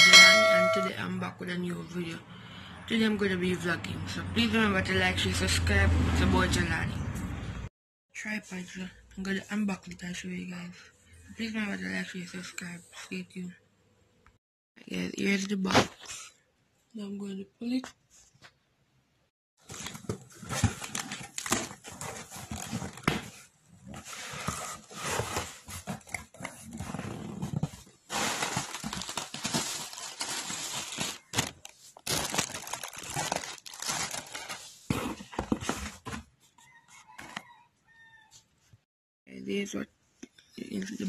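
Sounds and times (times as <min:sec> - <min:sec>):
cardboard box tearing: 0:19.7 - 0:23.4, 0:24.0 - 0:36.0.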